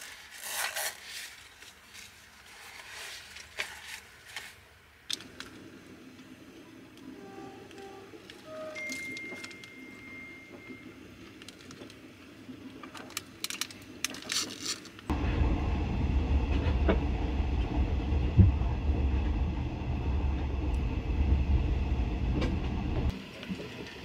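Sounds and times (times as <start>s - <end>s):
train rumbling on track: 15.1s - 23.1s.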